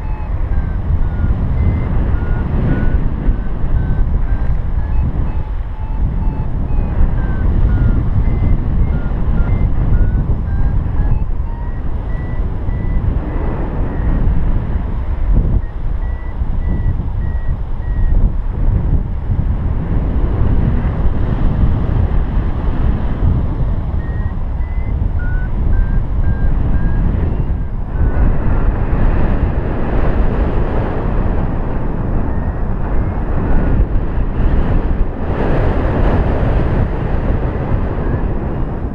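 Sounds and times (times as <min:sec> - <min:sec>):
variometer beeping: 0:00.0 - 0:18.4, 0:23.1 - 0:29.4, 0:31.8 - 0:34.0
wind rushing over microphone: 0:00.0 - 0:38.9.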